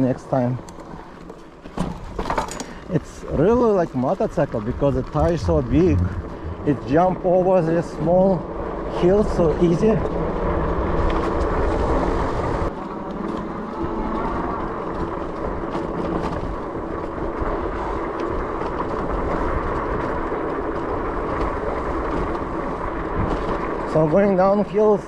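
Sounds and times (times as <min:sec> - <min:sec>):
bike rattles and clicks: 0:00.0 - 0:07.0, 0:14.6 - 0:25.0
bike tires rumbling on dirt: 0:00.0 - 0:25.0.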